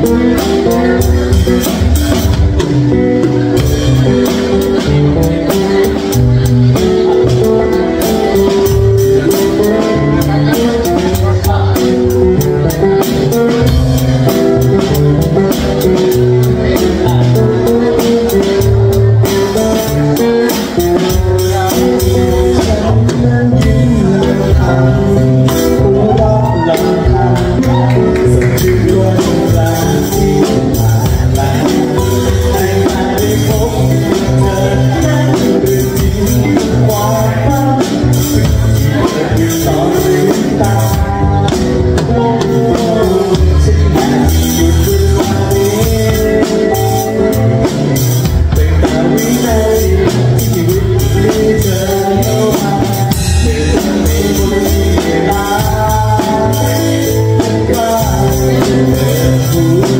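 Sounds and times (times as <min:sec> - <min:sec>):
acoustic guitar: 0:00.0 - 0:59.9
drum kit played with sticks: 0:00.0 - 0:59.9.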